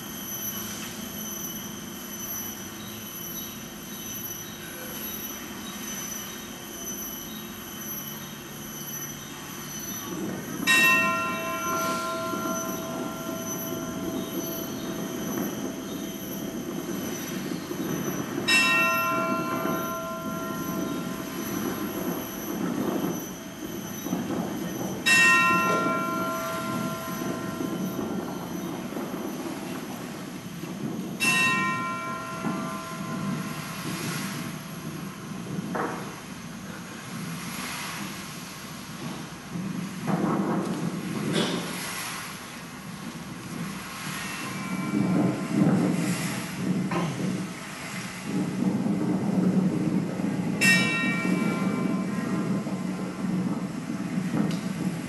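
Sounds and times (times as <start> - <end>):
faint high whine: 0.0 - 38.5
bell ringing: 10.2 - 29.0.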